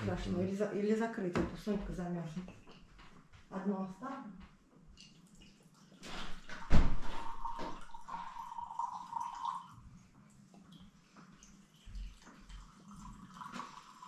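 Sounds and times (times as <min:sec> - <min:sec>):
drink poured into glass: 0:07.0 - 0:09.8.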